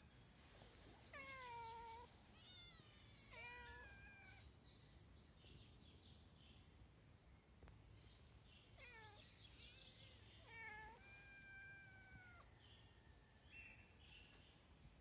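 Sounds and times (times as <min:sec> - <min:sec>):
cats meowing: 0:01.1 - 0:04.5, 0:08.8 - 0:09.2, 0:10.4 - 0:12.5.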